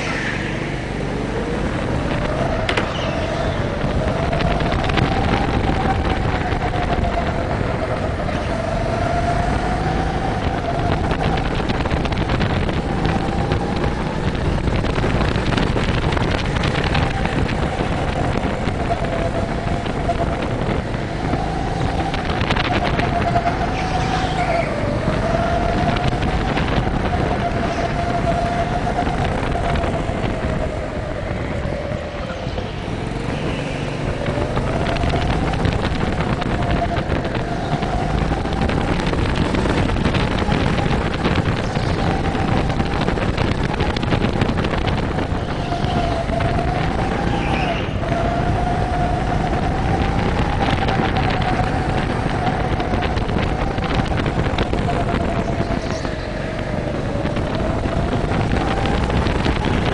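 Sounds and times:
go-kart engine running hard: 0.0 - 59.9.

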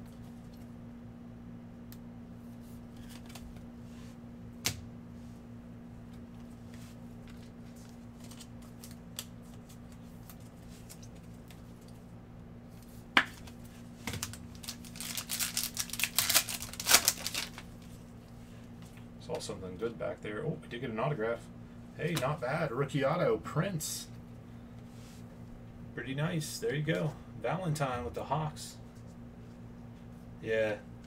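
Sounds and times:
foil wrapper crinkling and tearing: 14.1 - 17.9.

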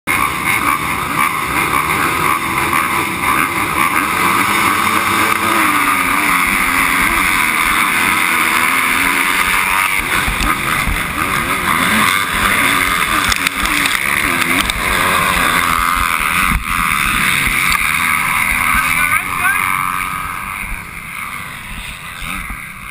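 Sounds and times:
dirt bikes revving: 0.1 - 22.9.

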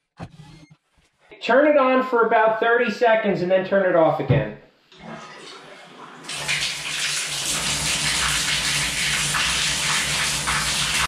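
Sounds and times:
water splashing onto tiled floor: 6.2 - 11.0.

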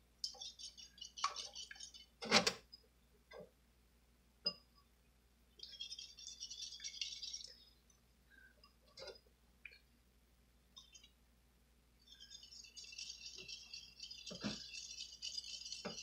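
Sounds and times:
whisk rattling against ceramic bowl: 0.2 - 2.2, 5.6 - 7.6, 12.1 - 16.0.

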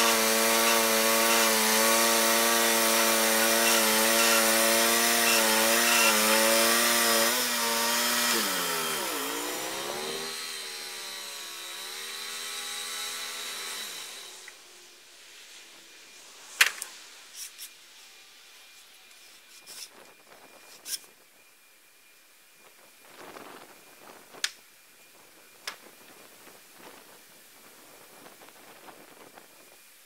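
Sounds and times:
sawmill engine running: 0.0 - 14.6.

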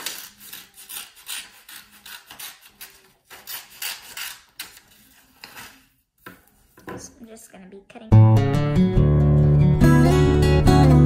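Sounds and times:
scissors cutting paper: 0.0 - 5.9.

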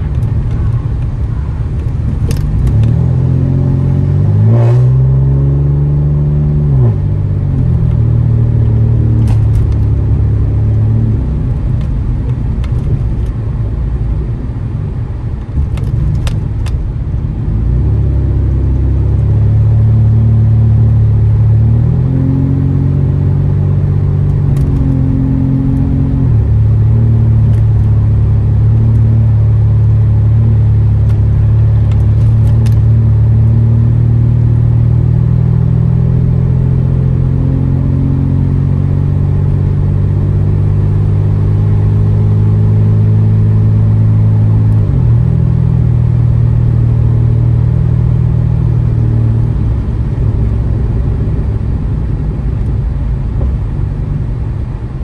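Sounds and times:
car exhaust droning: 0.0 - 55.0.

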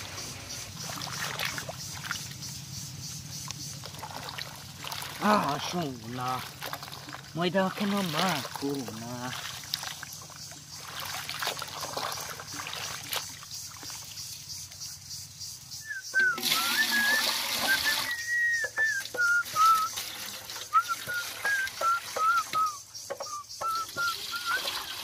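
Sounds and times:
water sloshing in metal bowl: 0.0 - 2.5, 3.4 - 14.8, 16.1 - 25.0
water poured into metal pot: 3.9 - 14.0, 16.1 - 22.7, 23.6 - 25.0
wavering high whistle: 15.8 - 20.0, 20.7 - 24.9.

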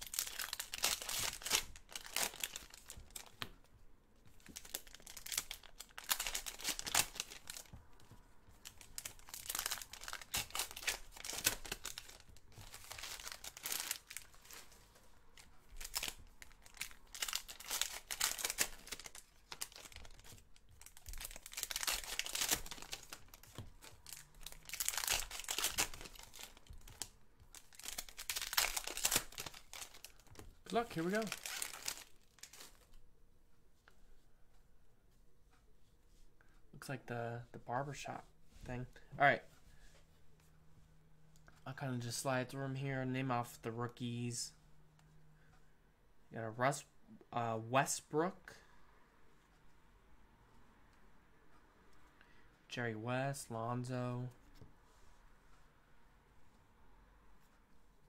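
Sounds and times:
wrappers crinkling and tearing: 0.0 - 3.6, 4.3 - 32.9.

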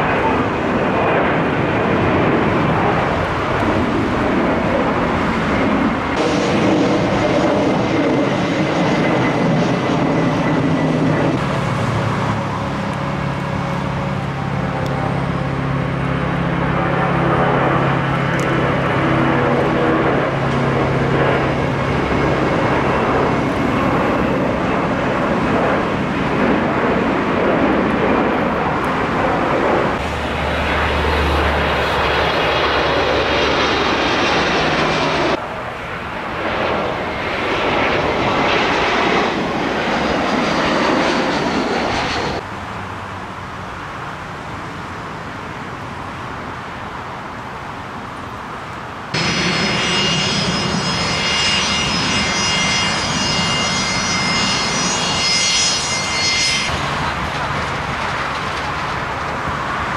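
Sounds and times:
jet engines roaring: 0.0 - 59.9
steady jet hum: 49.1 - 59.9.

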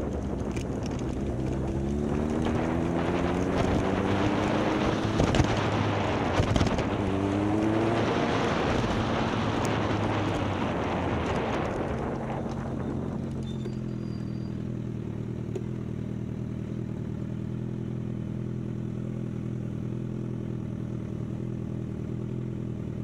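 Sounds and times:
wind on microphone: 0.0 - 13.3
motorcycle engine accelerating: 0.0 - 23.0.

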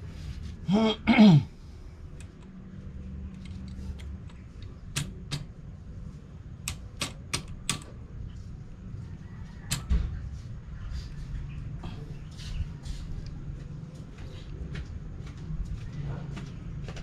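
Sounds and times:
hand tools clicking on metal: 6.6 - 7.9.

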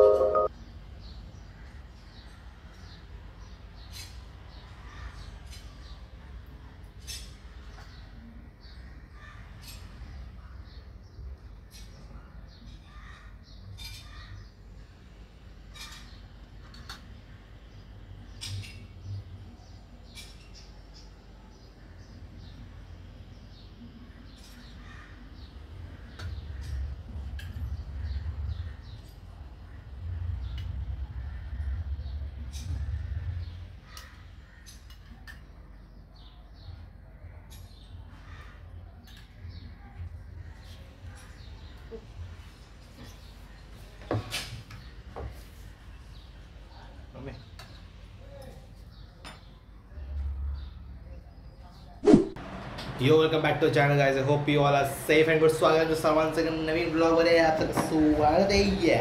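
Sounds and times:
birds calling: 15.7 - 43.8.

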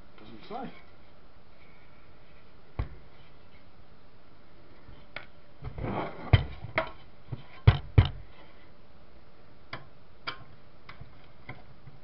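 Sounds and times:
sharp clicks and knocks: 5.1 - 8.2, 9.7 - 12.0.

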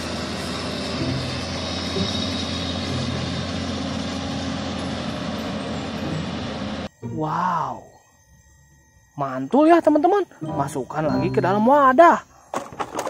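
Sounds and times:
heavy diesel engine running: 0.0 - 6.9.

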